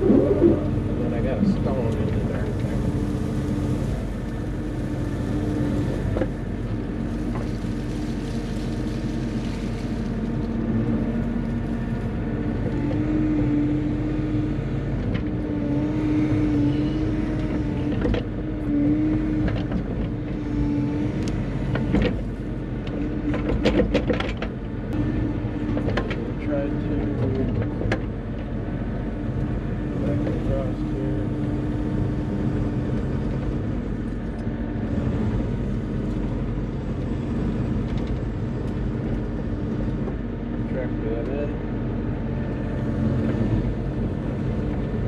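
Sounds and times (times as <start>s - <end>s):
hydraulic whine: 0.0s - 4.6s
excavator diesel engine running: 0.0s - 45.0s.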